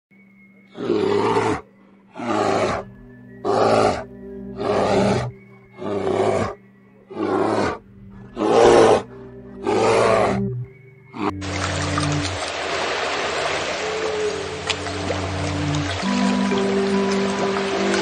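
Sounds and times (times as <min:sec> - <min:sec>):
background music with held notes: 0:00.1 - 0:18.0
loud animal roars: 0:00.7 - 0:01.6, 0:02.2 - 0:02.8, 0:03.4 - 0:04.0, 0:04.6 - 0:11.5.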